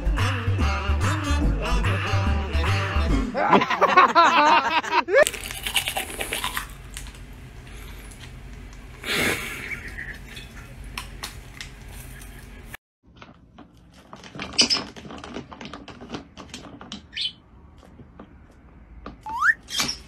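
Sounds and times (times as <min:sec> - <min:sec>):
toothbrush scrubbing: 0:05.3 - 0:06.8
bird chirps: 0:19.3 - 0:20.0.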